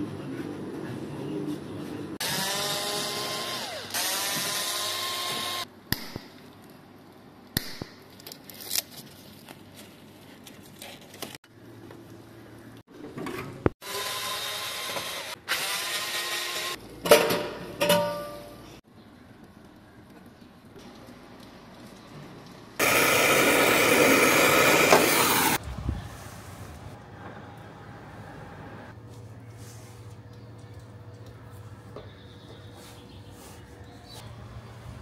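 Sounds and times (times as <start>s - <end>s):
cordless drill whining: 2.2s - 5.6s.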